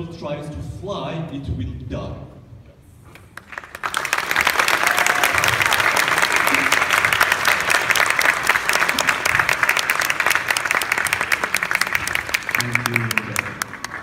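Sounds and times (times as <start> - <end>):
audience applauding: 3.2 - 14.0.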